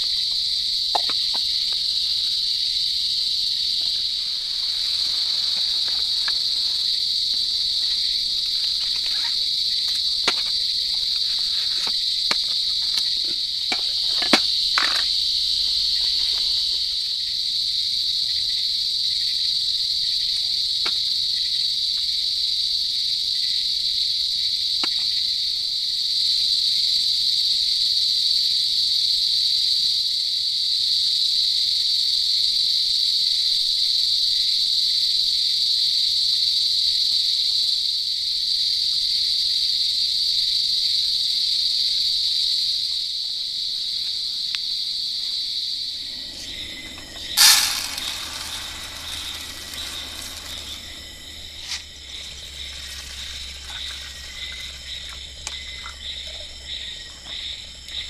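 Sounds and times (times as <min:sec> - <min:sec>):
insect chorus: 0:00.0 - 0:58.0.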